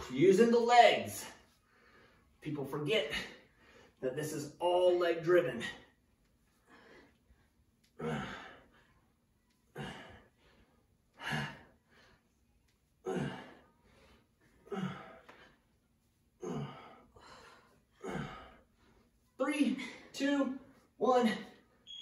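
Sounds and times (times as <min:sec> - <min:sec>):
quiet breaths drawn in: 0:05.6 - 0:21.8.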